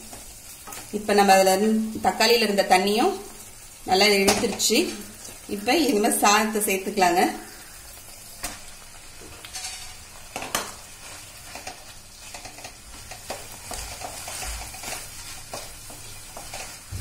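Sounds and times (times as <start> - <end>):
food sizzling: 0.0 - 17.0
wooden spatula scraping steel pan: 11.0 - 17.0.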